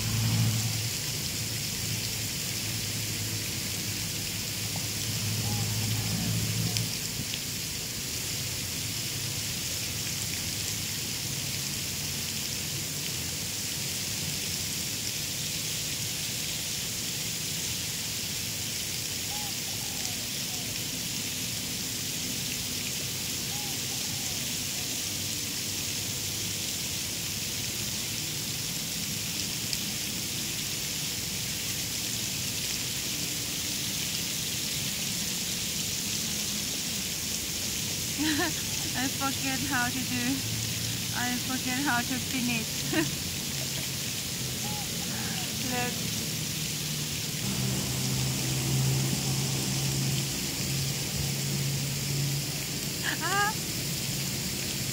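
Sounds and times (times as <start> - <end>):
high hiss: 34.2 - 54.9.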